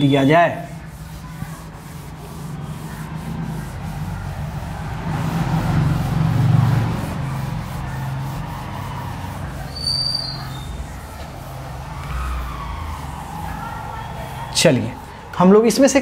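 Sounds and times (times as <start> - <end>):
cloth wiping whiteboard: 0.0 - 16.0
high squeak: 9.7 - 10.9.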